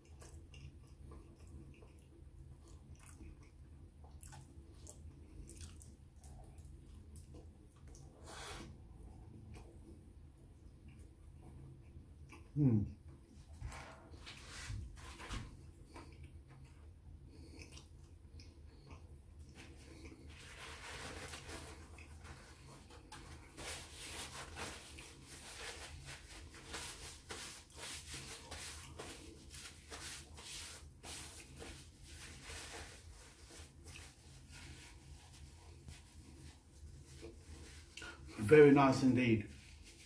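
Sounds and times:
paper napkin rustling: 19.6s - 40.0s.

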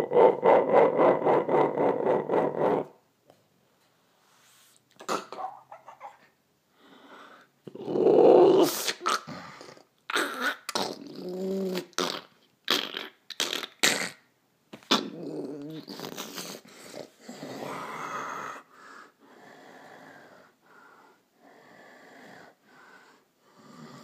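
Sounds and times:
person breathing: 6.7s - 7.6s, 16.5s - 24.0s
person making snore-like noises: 7.7s - 14.2s, 14.9s - 18.7s, 23.5s - 24.0s.

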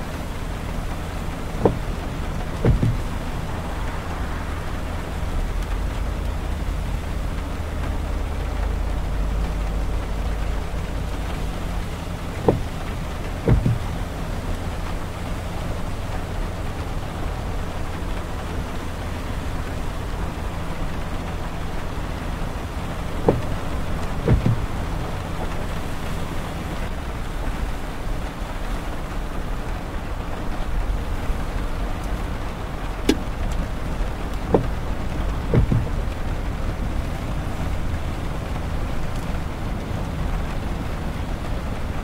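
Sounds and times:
car driving on wet road: 0.0s - 42.0s
short sharp taps: 2.6s - 3.1s, 13.5s - 13.9s, 23.3s - 23.6s, 24.3s - 24.7s, 34.5s - 34.8s, 35.5s - 36.0s.

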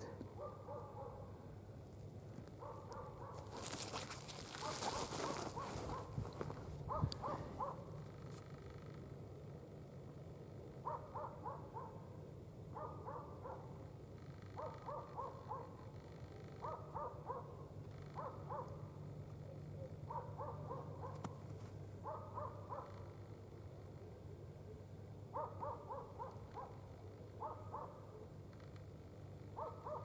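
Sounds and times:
faint animal calls: 2.6s - 9.2s.

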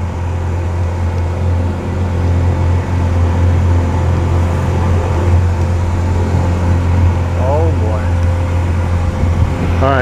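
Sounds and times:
engine low drone: 0.0s - 10.0s.

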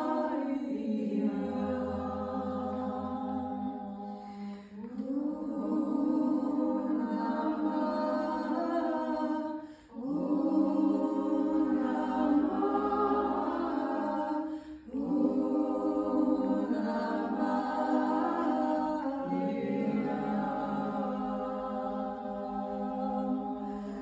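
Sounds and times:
woman singing held vocal tones: 0.0s - 24.0s.

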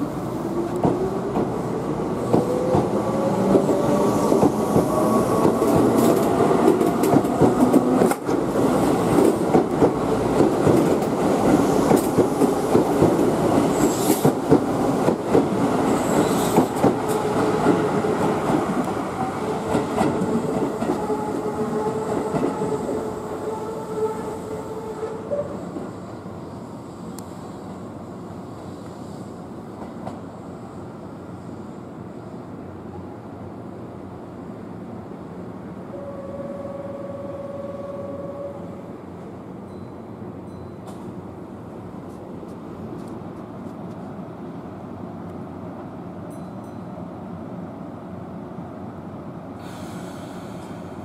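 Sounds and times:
approaching train whine: 0.0s - 29.5s, 35.8s - 39.9s.

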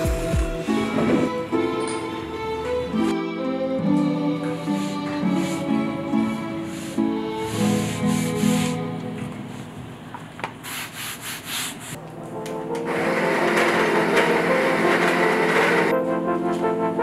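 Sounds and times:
soft background music: 0.0s - 10.1s, 12.0s - 17.0s
espresso machine pump buzzing: 12.9s - 15.9s.

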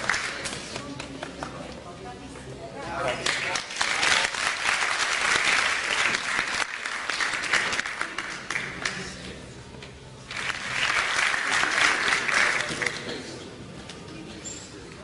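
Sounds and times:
audience applauding: 0.0s - 0.5s, 3.2s - 9.2s, 10.3s - 13.2s.

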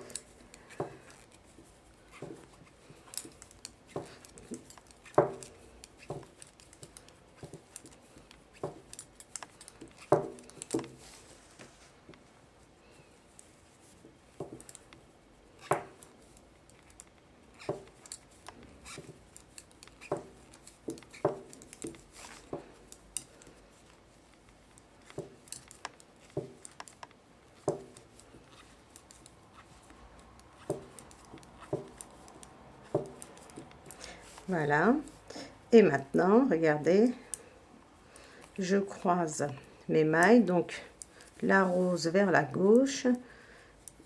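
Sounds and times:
knitting needles clicking: 0.0s - 11.2s, 13.2s - 35.3s.

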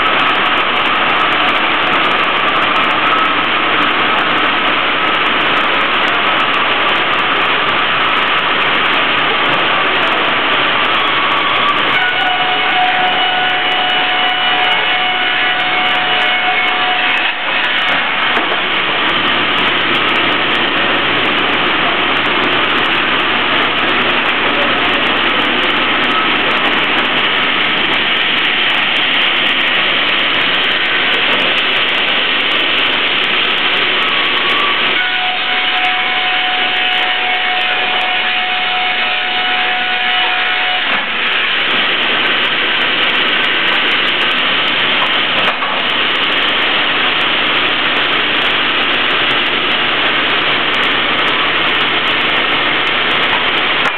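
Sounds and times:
steady machine whine: 0.0s - 53.9s.

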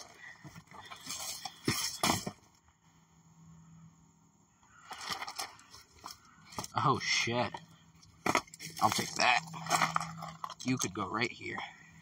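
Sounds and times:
shoes crunching on gravel: 8.2s - 10.9s.

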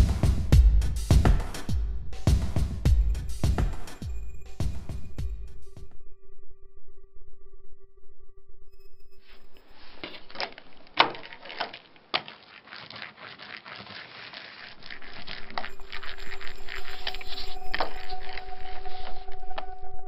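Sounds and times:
ink roller crackling hiss: 11.6s - 18.0s.

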